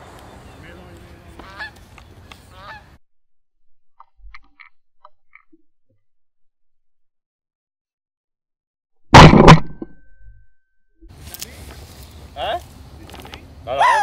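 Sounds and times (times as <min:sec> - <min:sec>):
geese honking: 0:01.3 - 0:03.0, 0:13.7 - 0:14.0.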